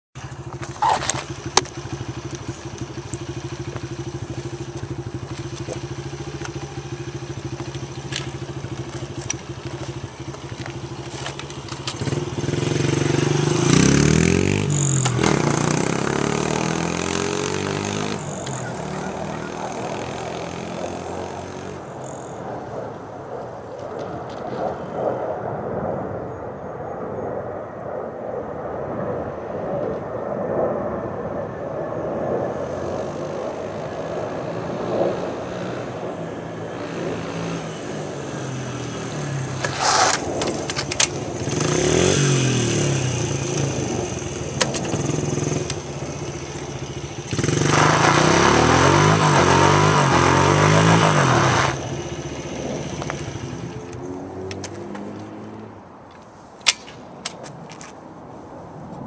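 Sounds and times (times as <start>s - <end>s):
tyre spinning on asphalt: 0.2s - 22.3s, 37.1s - 55.5s
dirt bike engine revving: 0.4s - 22.3s, 36.7s - 55.6s.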